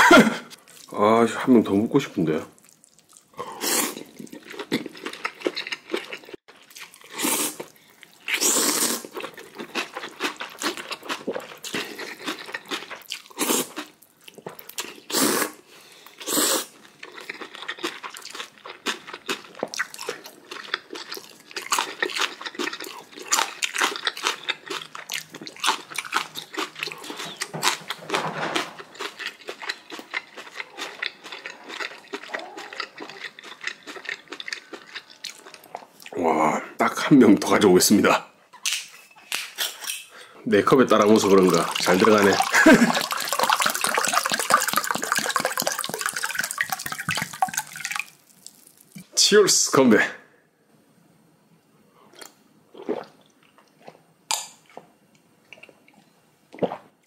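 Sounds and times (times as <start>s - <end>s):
wet chewing and crunching: 2.6s - 15.2s, 16.1s - 36.2s, 41.0s - 49.1s
loud slurping of noodles: 3.4s - 4.2s, 7.1s - 7.7s, 8.3s - 9.2s, 15.1s - 16.8s.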